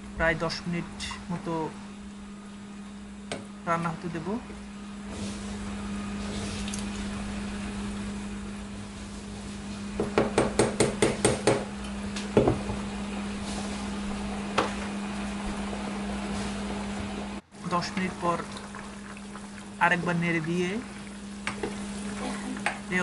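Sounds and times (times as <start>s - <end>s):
steady low hum: 0.0s - 23.0s
spatula knocking on a saucepan: 10.0s - 11.7s.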